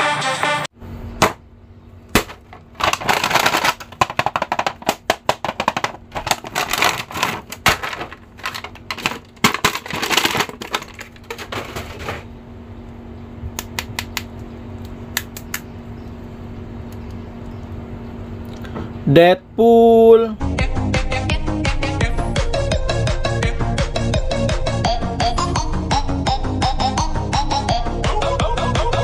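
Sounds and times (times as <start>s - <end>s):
faint steady hum: 0.8s - 20.8s
plastic packaging crinkling: 2.2s - 12.2s.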